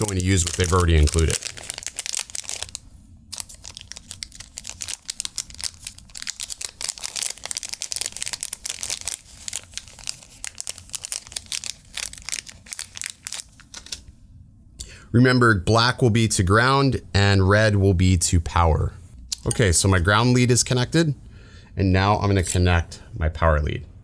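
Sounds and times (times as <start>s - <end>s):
plastic bag crinkling: 0.0s - 14.0s.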